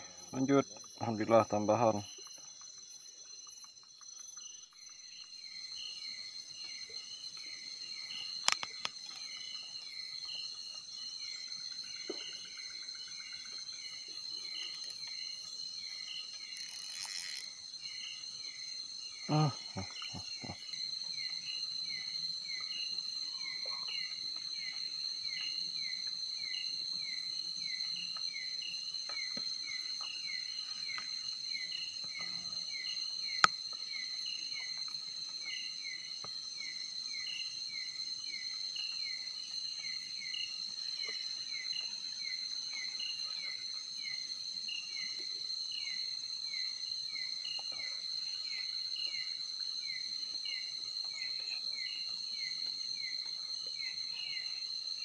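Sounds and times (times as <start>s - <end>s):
insects high-pitched drone: 0.0s - 55.0s
insect falling chirp: 8.2s - 9.5s.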